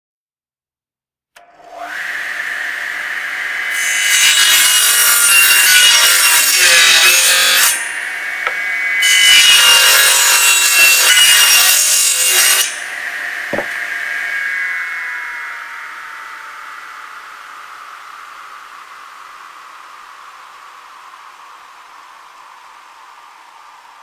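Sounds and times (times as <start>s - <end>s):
table saw cutting wood: 1.4s - 18.8s
short thump: 13.5s - 13.8s.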